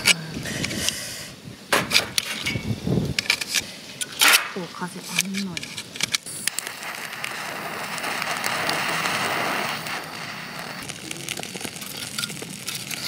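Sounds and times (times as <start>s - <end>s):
fire starter crackling and popping: 1.6s - 13.0s
torch lighter hissing: 3.0s - 13.0s.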